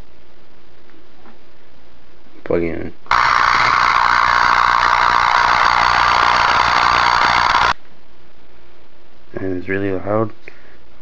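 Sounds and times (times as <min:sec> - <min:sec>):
tesla coil electrical buzz: 0:03.1 - 0:07.8
low hum: 0:03.1 - 0:09.3.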